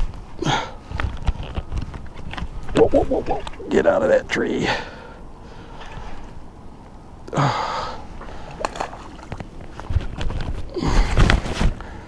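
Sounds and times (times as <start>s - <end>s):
fish splashing in water: 8.3s - 9.4s.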